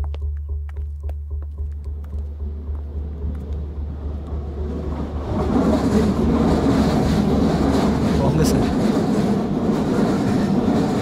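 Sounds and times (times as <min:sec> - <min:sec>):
steady low hum: 0:00.0 - 0:08.0
train rumble and rattle: 0:01.6 - 0:11.0.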